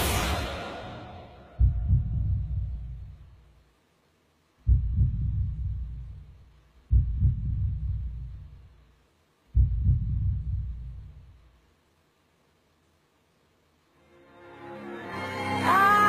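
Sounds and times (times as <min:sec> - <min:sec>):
deep heavy double thumps: 0:01.4 - 0:03.3, 0:04.6 - 0:08.6, 0:09.5 - 0:11.3.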